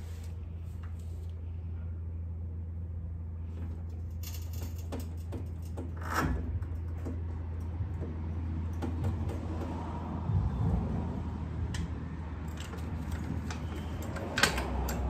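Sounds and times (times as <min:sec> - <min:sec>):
steady low hum: 0:00.0 - 0:15.0
metal clicks and knocks: 0:04.0 - 0:09.9, 0:11.7 - 0:15.0.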